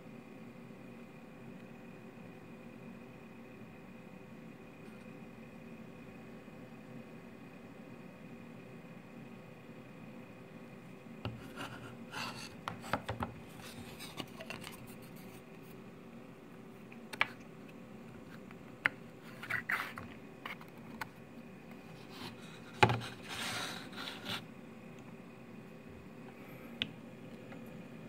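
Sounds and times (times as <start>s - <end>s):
wooden lid scraping: 11.3s - 15.4s, 22.0s - 24.4s.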